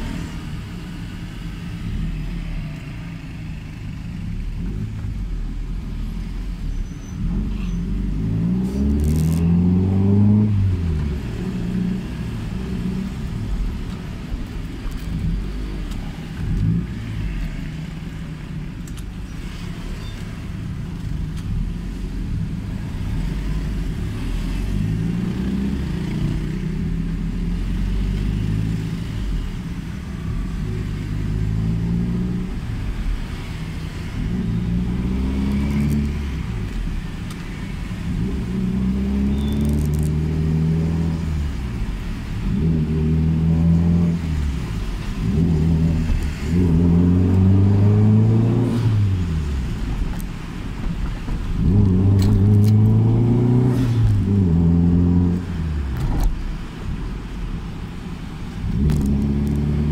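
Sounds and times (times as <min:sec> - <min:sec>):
car engine and exhaust from cabin: 0:00.0 - 0:59.9.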